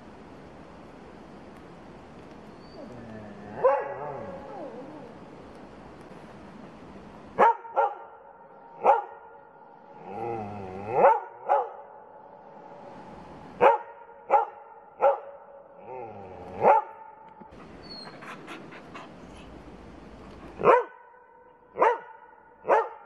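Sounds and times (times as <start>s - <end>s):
faint clicks: 1.5s - 3.4s, 4.4s - 6.7s
dog whining: 2.6s - 5.2s, 17.6s - 19.1s
dog barking: 3.6s - 4.5s, 7.4s - 9.4s, 10.9s - 12.0s, 13.6s - 15.5s, 16.6s - 17.1s, 20.6s - 23.0s.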